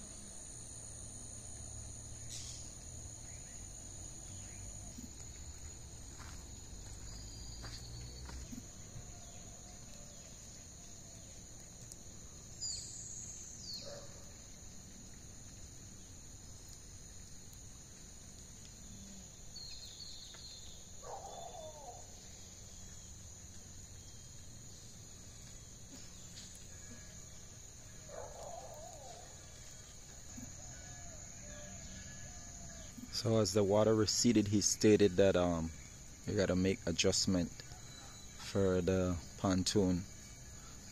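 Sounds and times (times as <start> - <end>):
insects droning: 0.0 - 40.9
bird calls: 2.3 - 3.7, 19.6 - 22.2.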